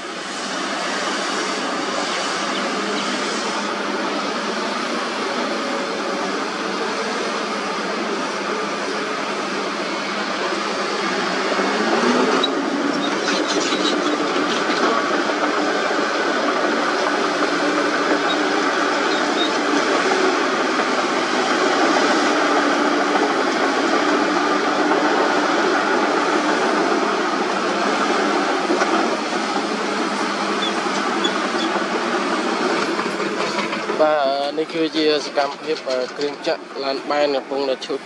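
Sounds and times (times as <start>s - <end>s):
heavy diesel engines running: 0.0s - 38.0s.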